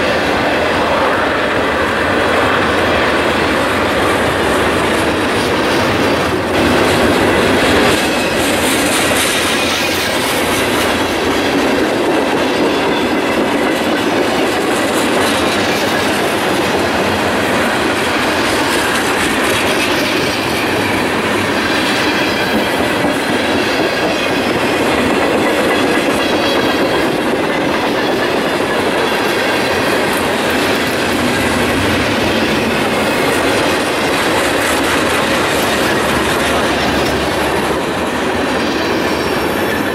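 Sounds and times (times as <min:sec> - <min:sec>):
freight train wheels rolling on rails: 0:00.0 - 0:39.9.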